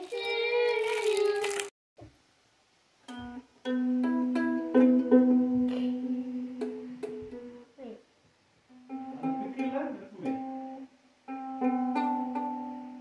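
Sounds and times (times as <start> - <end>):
ukulele strumming: 3.1 - 7.6, 8.8 - 13.0.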